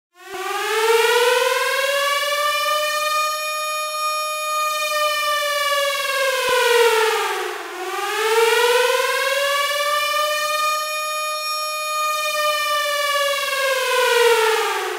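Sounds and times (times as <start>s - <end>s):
air-raid siren wailing: 0.2s - 14.9s.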